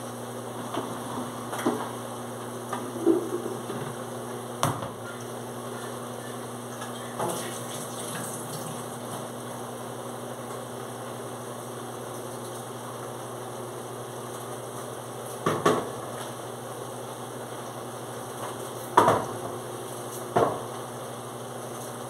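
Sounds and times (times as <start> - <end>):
dishes clinking against sink: 4.7 - 8.3
tap water running: 6.7 - 9.4.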